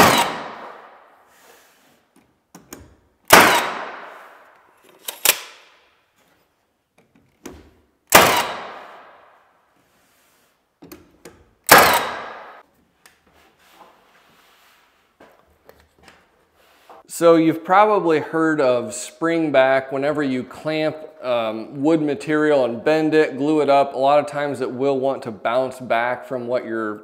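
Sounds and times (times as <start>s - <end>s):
nail gun shots: 0.0s - 1.0s, 3.3s - 4.5s, 5.1s - 5.8s, 8.1s - 9.2s, 11.6s - 12.6s
tool handling clicks: 4.5s - 5.7s.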